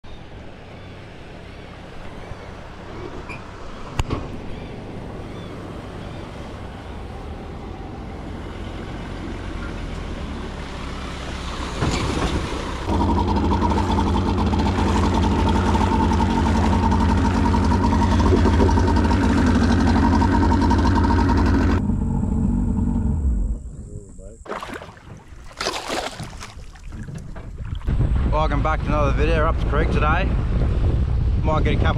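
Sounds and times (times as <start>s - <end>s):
low vehicle engine hum: 0.0s - 24.4s
outboard motor droning: 0.1s - 27.9s.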